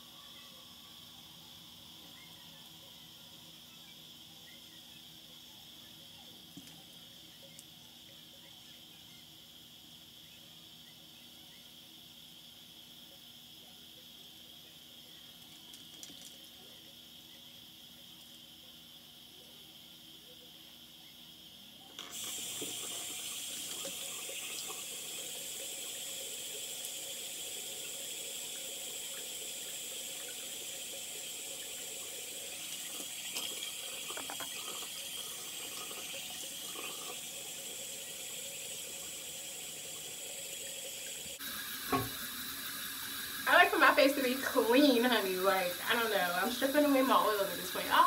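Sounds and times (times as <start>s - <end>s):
tap water running: 14.3s - 18.4s, 21.9s - 48.0s.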